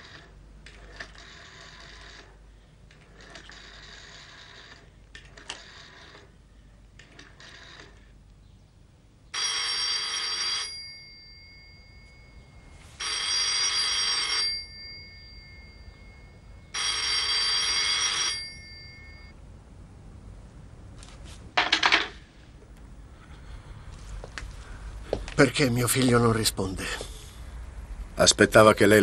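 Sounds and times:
telephone bell ringing: 0:00.0 - 0:02.4, 0:03.2 - 0:06.3, 0:09.4 - 0:19.4.

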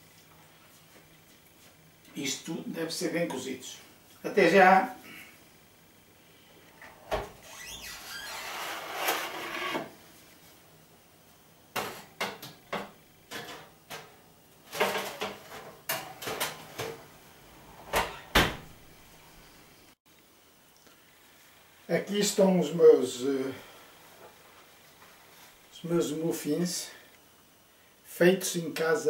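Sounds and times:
metal baking tray scraping: 0:08.3 - 0:09.9.

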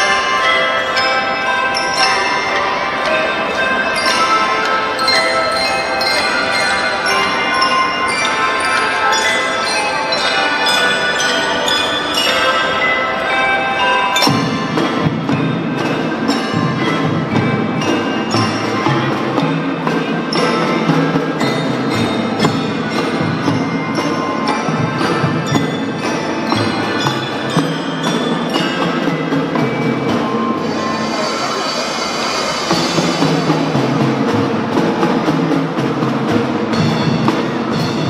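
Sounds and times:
xylophones and bells melody: 0:00.0 - 0:38.0.

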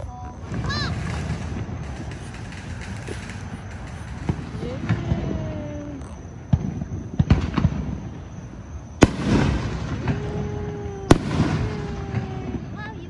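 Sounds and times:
fireworks bangs: 0:00.2 - 0:13.0
aerial shell bursting: 0:09.0 - 0:12.8.

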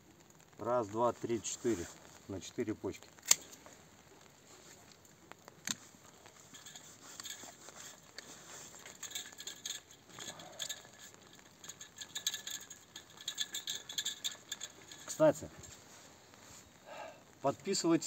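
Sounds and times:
vine canes rustling and clicking: 0:00.2 - 0:18.0
pruning shears snip: 0:03.2 - 0:03.6, 0:05.6 - 0:05.8.

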